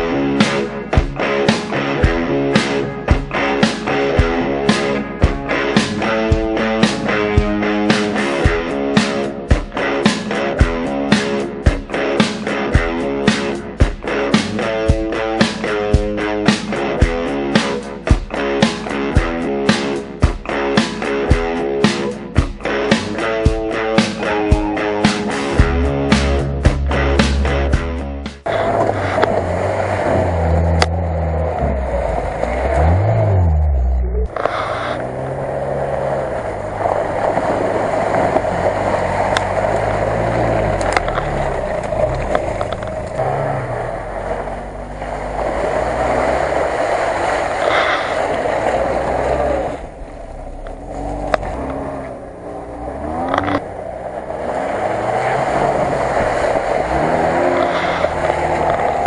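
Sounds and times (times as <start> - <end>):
car engines revving: 0.0 - 59.0
steady rushing noise: 34.2 - 59.0.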